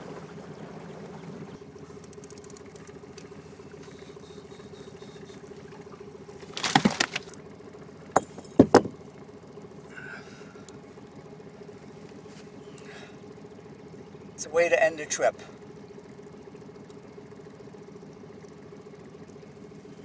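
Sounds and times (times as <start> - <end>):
outboard motor running: 0.0 - 20.0
fish splashing and rattling: 1.8 - 4.0, 5.2 - 9.6
fishing reel clicks: 2.0 - 2.9
sharp knocks: 8.2 - 9.0.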